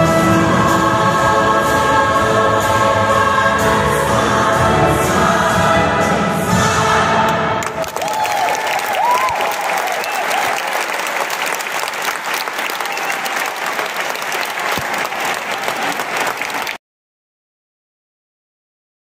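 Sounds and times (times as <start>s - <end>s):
audience applauding: 7.6s - 16.8s.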